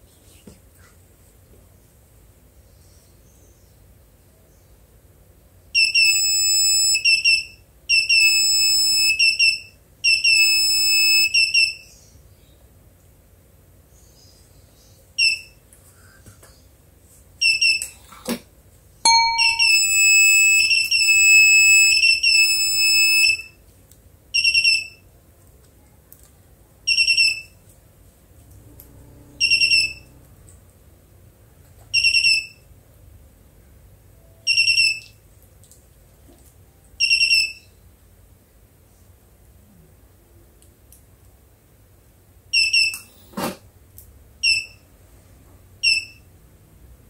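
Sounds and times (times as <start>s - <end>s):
electronic beeps: 6.0s - 7.0s, 19.1s - 23.4s
jingle of stepped tones: 19.1s - 21.2s.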